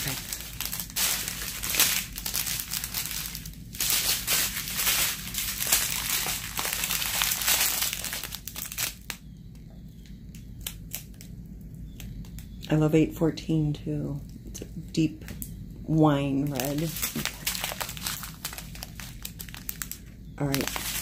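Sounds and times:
plastic packaging crinkling: 0.0s - 9.2s, 16.4s - 21.0s.

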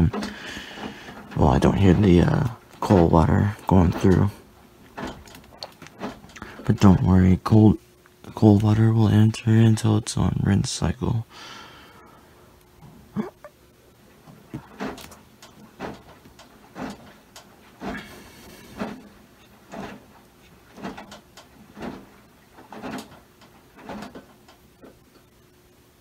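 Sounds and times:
washing machine water swishing: 0.0s - 7.5s, 14.0s - 26.0s
faint steady hum: 0.0s - 26.0s.

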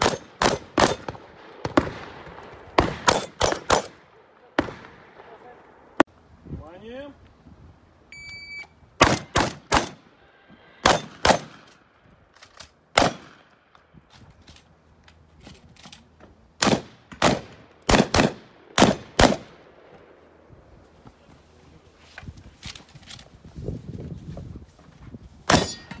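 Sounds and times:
shotgun firing: 0.0s - 5.5s, 9.0s - 10.0s, 10.8s - 11.7s, 12.9s - 13.5s, 16.6s - 19.6s.

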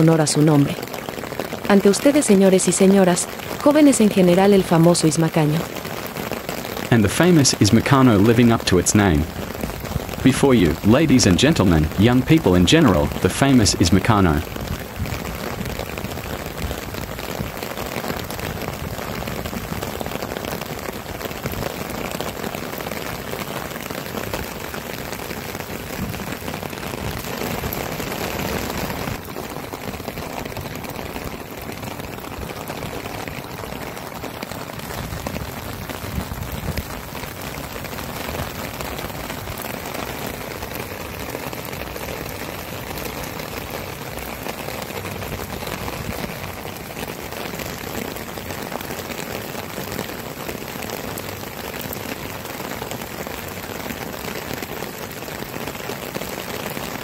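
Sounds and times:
rain on wet wooden deck: 0.0s - 57.0s.

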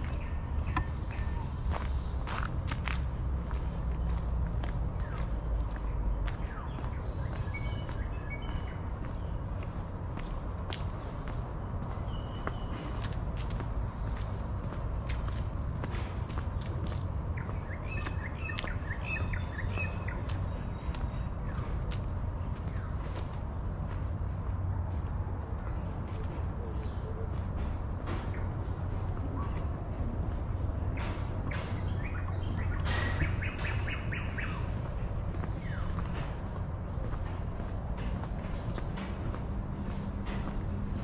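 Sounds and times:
birds calling: 0.0s - 23.4s, 25.6s - 39.4s
insects droning: 0.0s - 41.0s
footsteps tapping: 32.6s - 41.0s.

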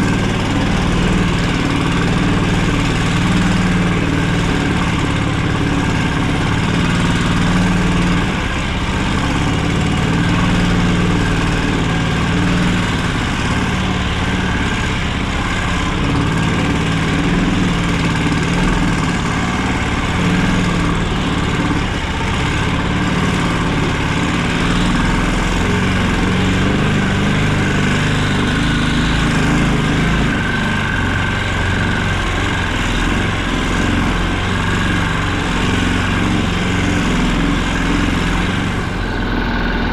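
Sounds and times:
all-terrain vehicle engine running: 0.0s - 39.9s.

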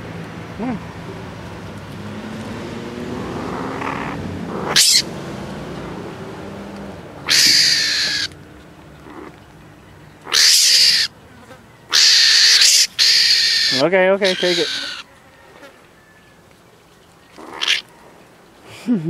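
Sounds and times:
baby mongoose screeching calls: 3.2s - 5.1s, 7.2s - 8.3s, 10.2s - 11.1s, 11.9s - 15.1s, 17.3s - 17.9s.

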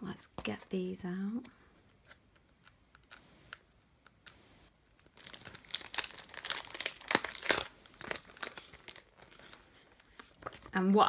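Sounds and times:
plastic packaging crinkling: 4.9s - 10.9s.

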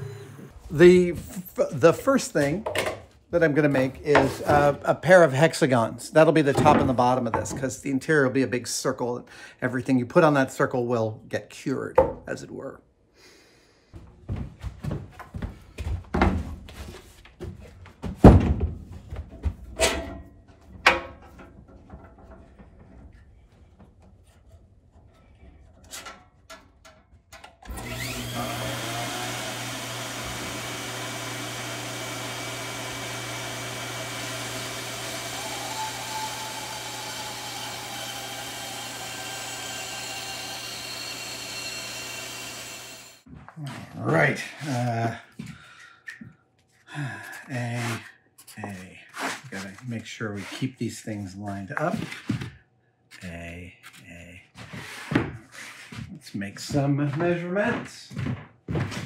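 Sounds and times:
wood and tools knocking: 2.4s - 3.1s, 4.1s - 4.8s, 6.5s - 7.7s, 17.4s - 24.2s
band saw motor hum: 27.7s - 43.2s.

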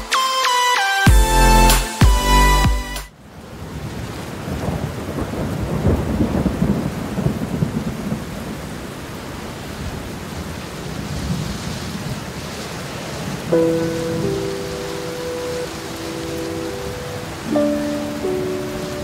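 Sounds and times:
steady rain: 3.1s - 19.0s
low roll of thunder: 3.7s - 8.7s.

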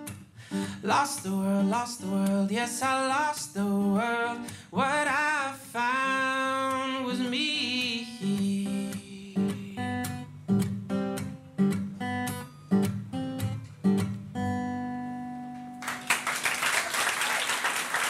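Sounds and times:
acoustic guitar strumming chords: 0.0s - 16.0s
audience applause: 15.8s - 18.0s.

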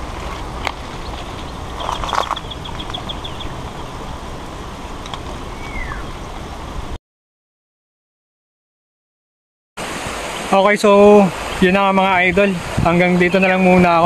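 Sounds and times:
leaves rustling and handling: 0.0s - 3.6s
wind noise on microphone: 0.0s - 7.0s, 11.4s - 14.0s
high bird chirps: 1.0s - 3.6s, 5.5s - 6.2s.

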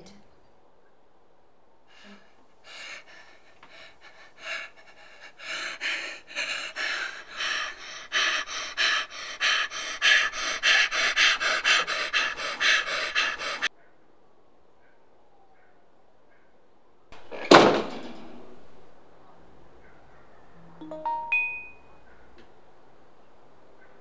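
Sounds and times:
person panting: 1.9s - 13.7s.

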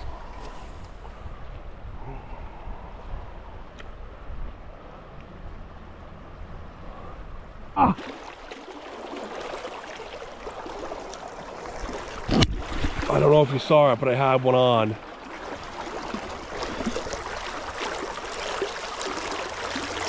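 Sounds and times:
river water rushing: 7.8s - 20.0s.

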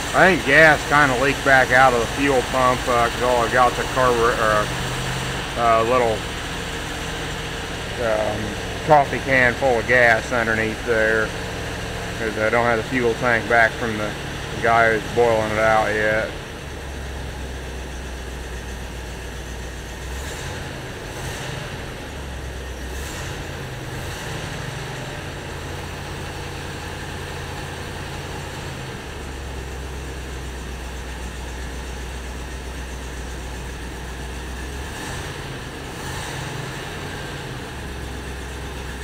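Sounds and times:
car engine idling: 0.0s - 39.0s.

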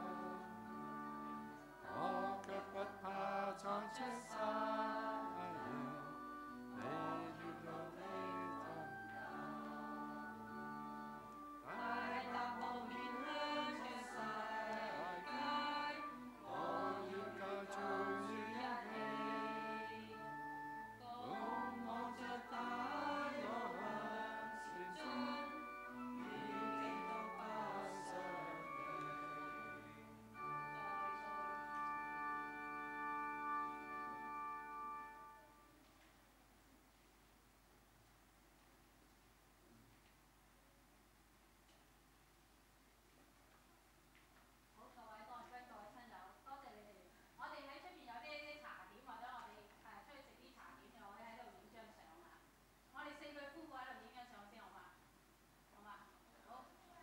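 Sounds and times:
congregation singing a hymn: 0.0s - 35.4s
keyboard accompaniment: 0.0s - 35.8s.

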